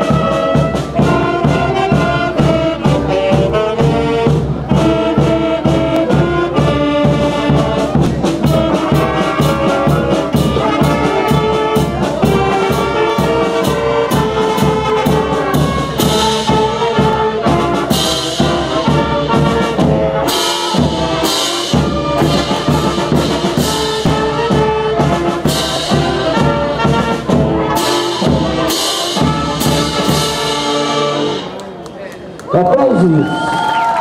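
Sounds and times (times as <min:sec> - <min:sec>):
concert band playing: 0:00.0 - 0:32.3.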